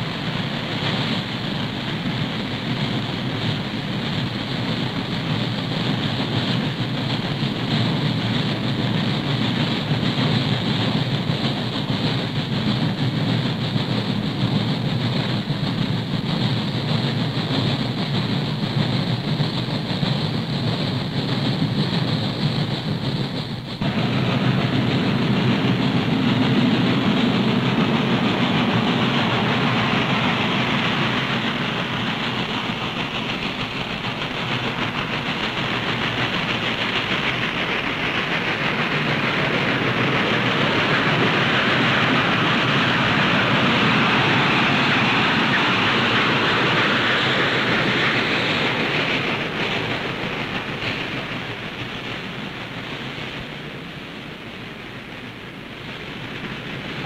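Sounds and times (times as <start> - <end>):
steam locomotive exhaust: 0.0 - 57.0
train cars rolling on rails: 0.0 - 57.0.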